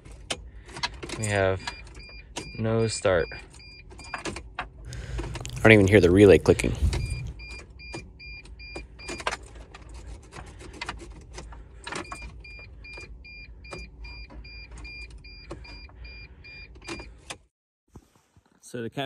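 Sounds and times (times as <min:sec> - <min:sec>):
low steady hum: 0:00.0 - 0:17.2
dashboard warning chime beeping: 0:01.3 - 0:04.3, 0:06.6 - 0:09.4, 0:11.9 - 0:17.1.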